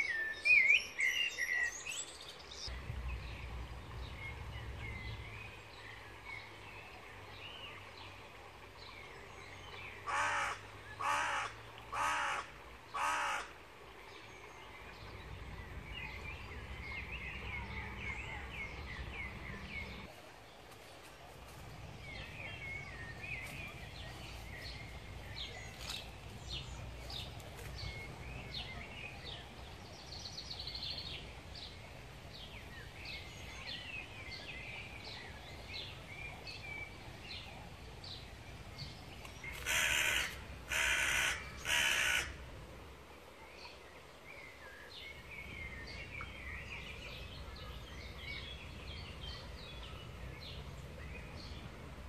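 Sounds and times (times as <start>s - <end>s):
low steady rumble: 2.7s - 7.4s
harsh calls of larger bird: 39.6s - 42.4s.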